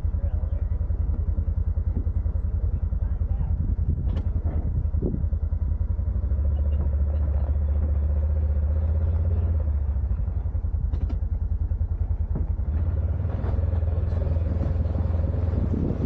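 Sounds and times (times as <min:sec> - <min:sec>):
vehicle engine running: 0:00.0 - 0:16.0.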